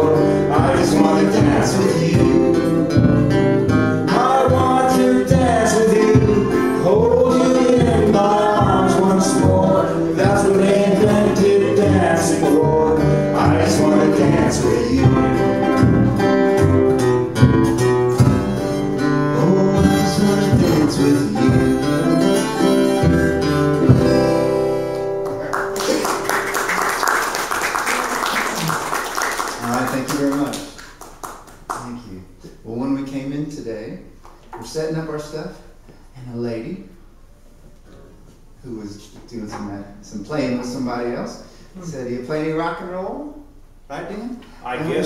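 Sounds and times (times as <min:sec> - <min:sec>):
men singing: 0:00.0 - 0:15.7, 0:19.3 - 0:22.6
acoustic string band playing: 0:00.0 - 0:26.4
applause: 0:25.2 - 0:32.0.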